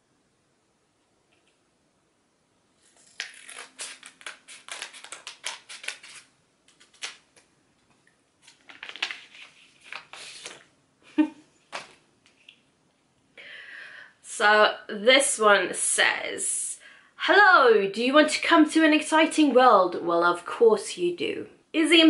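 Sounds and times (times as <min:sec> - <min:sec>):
wrapping crinkling and rustling: 0:02.8 - 0:07.5, 0:08.4 - 0:10.7
scissors snipping wrapping: 0:03.0 - 0:07.2.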